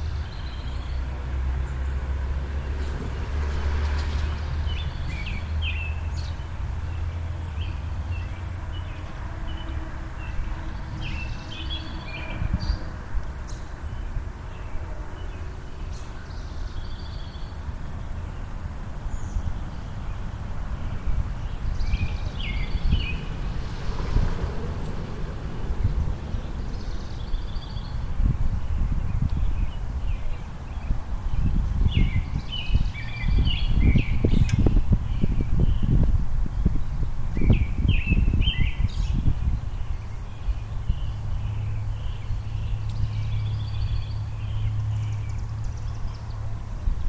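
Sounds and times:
gusty wind on microphone: 0.0 - 47.0
songbirds chirping: 0.0 - 47.0
low rumble: 20.6 - 30.4.

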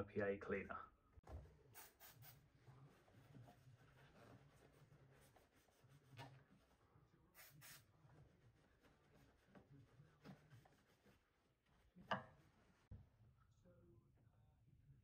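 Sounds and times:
cloth rubbing on wood: 2.7 - 6.8, 8.1 - 12.9.

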